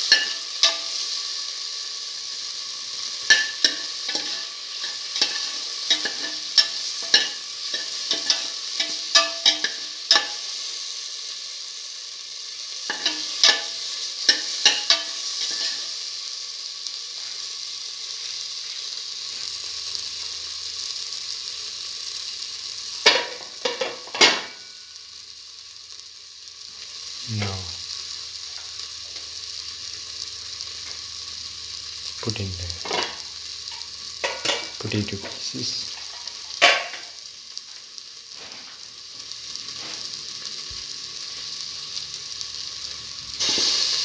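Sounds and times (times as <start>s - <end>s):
vegetables sizzling in hot oil: 0.0s - 44.0s
utensil scraping a pan: 3.3s - 10.4s.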